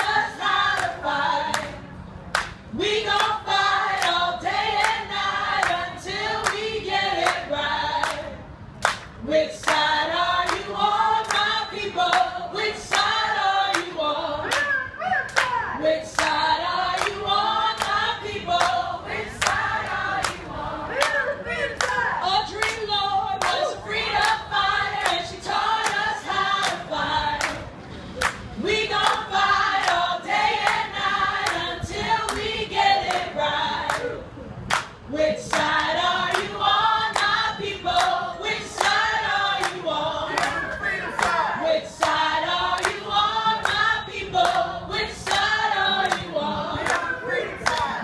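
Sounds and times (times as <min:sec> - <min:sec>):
group of voices singing: 0:00.0 - 0:02.0, 0:02.7 - 0:48.0
hand clapping: 0:02.3 - 0:02.6.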